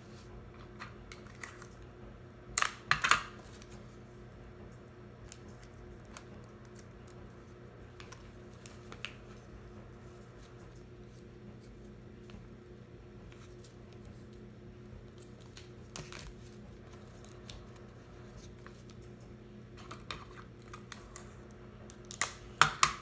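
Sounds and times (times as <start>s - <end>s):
paper rustling: 15.0s - 21.3s
paper crinkling: 15.0s - 21.4s.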